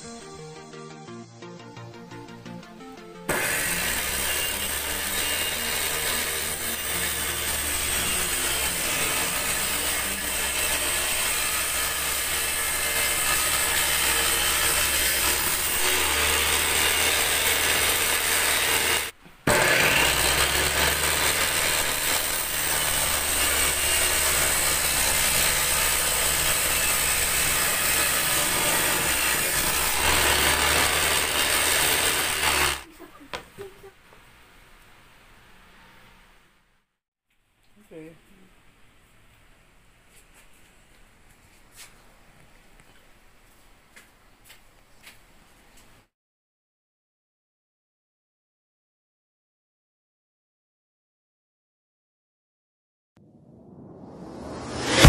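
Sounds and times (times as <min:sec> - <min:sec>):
circular saw ripping wood: 0:03.3 - 0:32.9, 0:54.6 - 0:55.0.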